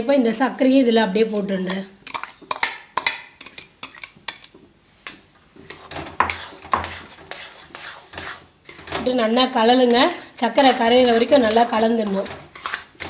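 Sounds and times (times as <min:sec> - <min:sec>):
steel spatula scraping pan: 0:05.7 - 0:13.0.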